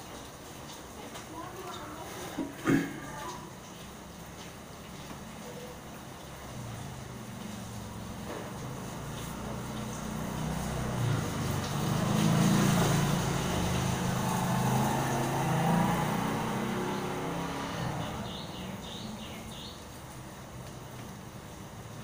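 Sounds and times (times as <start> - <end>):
rain hiss: 0.0 - 22.0
small motorcycle engine passing: 6.6 - 19.8.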